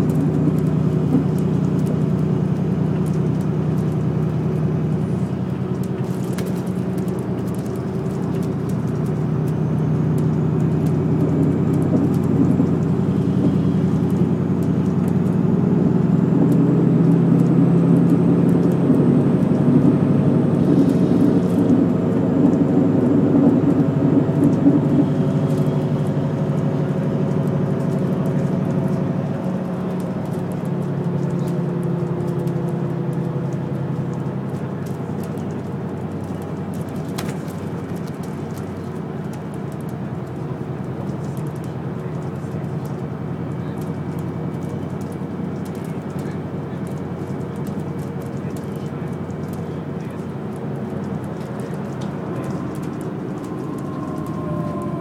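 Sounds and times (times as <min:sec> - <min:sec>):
bus diesel engine droning: 0:00.0 - 0:55.0
tyre and road rumble: 0:00.0 - 0:55.0.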